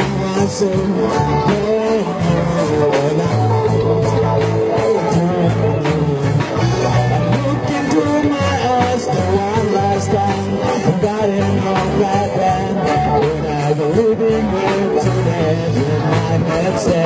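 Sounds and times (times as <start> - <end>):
person singing: 0.0 - 17.0
regular drum beat: 0.0 - 17.0
steady bass: 0.0 - 17.0.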